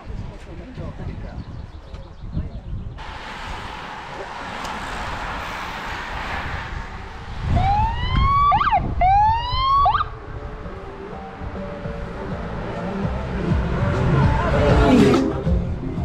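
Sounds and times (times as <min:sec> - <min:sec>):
steady rushing noise: 0:03.0 - 0:16.0
vehicle siren whoops: 0:07.4 - 0:10.8.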